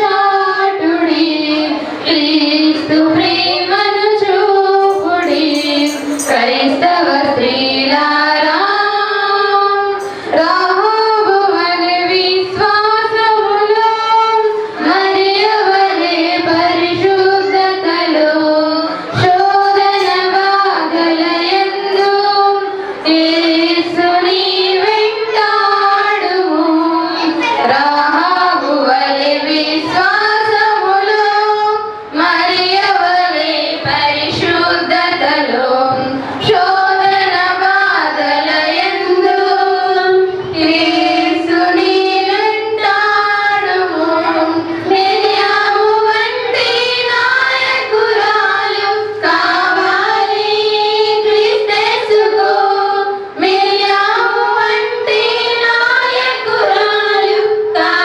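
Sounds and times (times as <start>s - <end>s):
woman singing: 0.0s - 58.0s.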